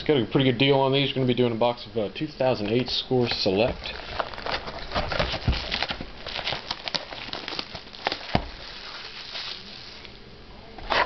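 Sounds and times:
plastic wrap crinkling: 2.5s - 10.3s.

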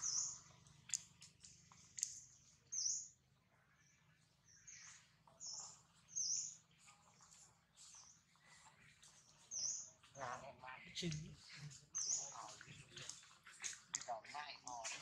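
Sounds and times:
faint high-pitched bird chirps: 0.0s - 1.3s, 1.9s - 10.5s.

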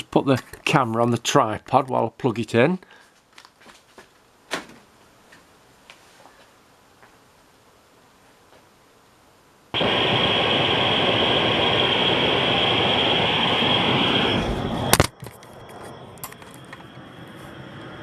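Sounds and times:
subwoofer loud rushing noise: 9.8s - 15.0s.

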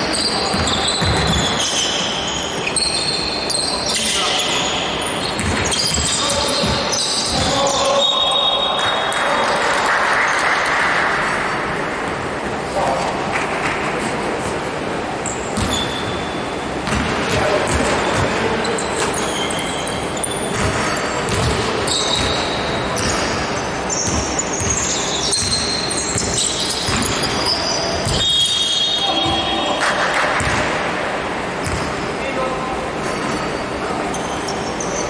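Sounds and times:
shoes squeaking on floor: 0.0s - 9.2s, 15.2s - 16.9s, 18.6s - 30.6s, 33.0s - 35.0s
basketball bouncing on court: 0.1s - 1.9s, 5.2s - 7.7s, 15.5s - 16.1s, 16.8s - 18.4s, 20.5s - 30.8s, 31.6s - 32.0s.

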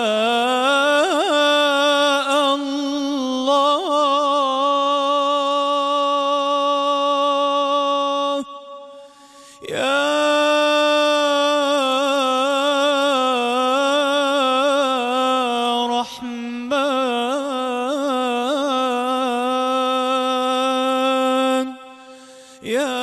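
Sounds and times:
man singing unaccompanied: 0.0s - 8.7s, 9.6s - 21.9s, 22.6s - 23.0s
singer breathing: 9.0s - 9.7s, 21.8s - 22.7s.

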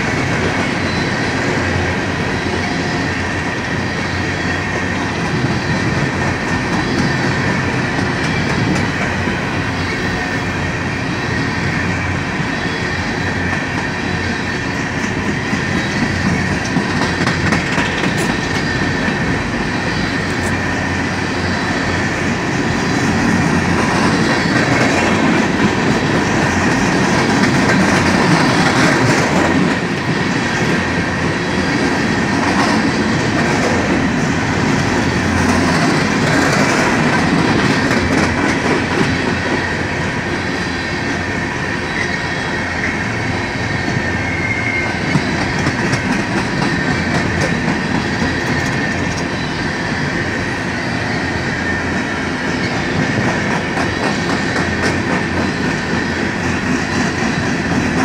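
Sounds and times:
train wheels rumbling on rail: 0.0s - 58.0s
high wheel squeal: 0.2s - 38.2s, 38.8s - 57.8s
wheels clickety-clack: 4.7s - 9.5s, 13.3s - 20.6s, 22.4s - 40.4s, 43.8s - 49.4s, 51.9s - 58.0s.

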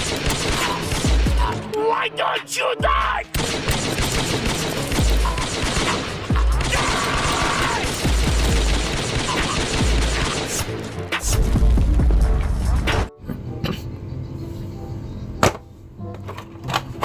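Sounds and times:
rapid gunfire: 0.0s - 1.6s, 3.3s - 11.3s
background music: 0.0s - 17.0s.

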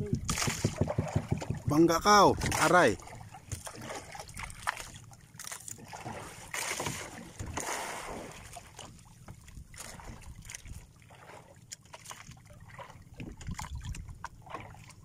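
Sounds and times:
wind buffeting microphone: 0.0s - 2.7s
water splashing against boat hull: 0.0s - 15.0s.

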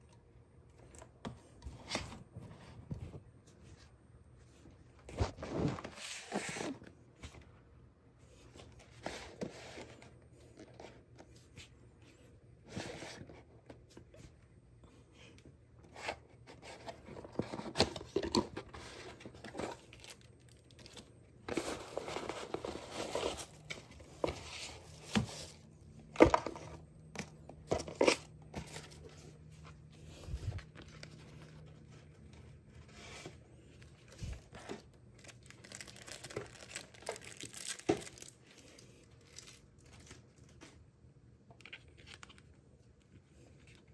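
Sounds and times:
plastic and paper rustling: 15.9s - 40.8s.

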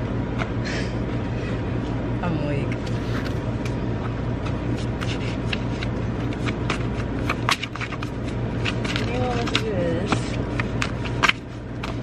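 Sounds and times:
low mechanical hum: 0.0s - 12.0s
paper cards clicking and tapping: 4.4s - 12.0s.

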